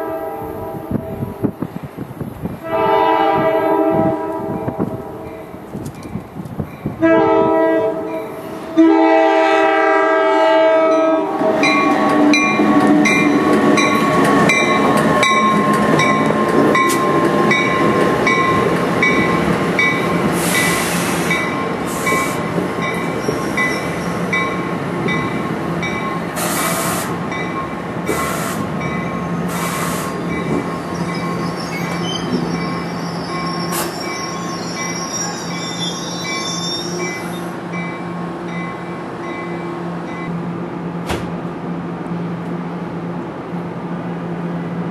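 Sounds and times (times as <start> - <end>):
train air horn blasts: 0.0 - 1.4, 2.6 - 5.4, 7.0 - 13.4, 26.4 - 27.1, 28.1 - 28.7
train wheels clicking over rail joints: 5.7 - 6.9, 11.7 - 32.6
train wheels squealing: 19.9 - 24.6, 28.1 - 38.0.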